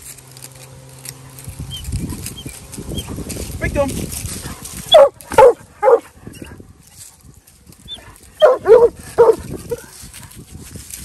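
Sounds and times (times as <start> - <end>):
dog barking: 4.9 - 6.1, 8.4 - 9.9.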